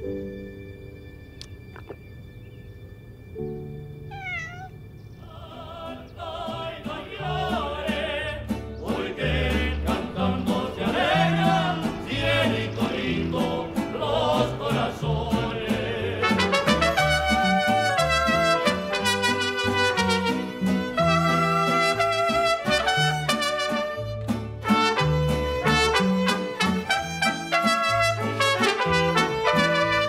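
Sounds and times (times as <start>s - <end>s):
mariachi music: 4.0s - 30.0s
person singing with vibrato: 5.2s - 18.6s.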